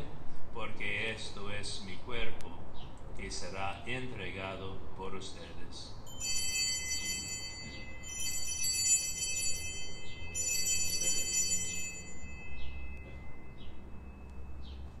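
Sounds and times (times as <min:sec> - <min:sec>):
altar bells ringing: 0:06.0 - 0:15.0.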